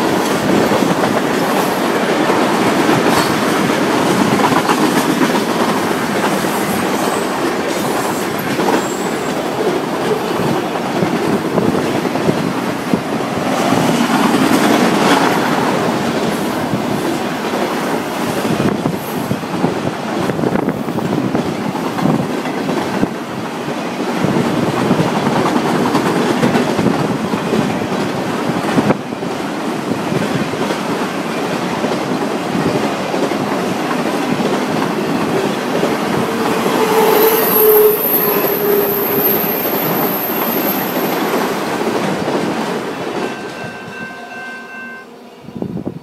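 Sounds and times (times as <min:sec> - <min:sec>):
freight cars rumbling on rails: 0:00.0 - 0:44.6
high-pitched wheel squeal: 0:36.6 - 0:41.3.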